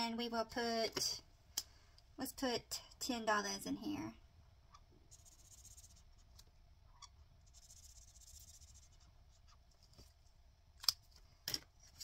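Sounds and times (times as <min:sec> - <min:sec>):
marker scratching on paper: 0:04.7 - 0:06.4, 0:07.0 - 0:09.6.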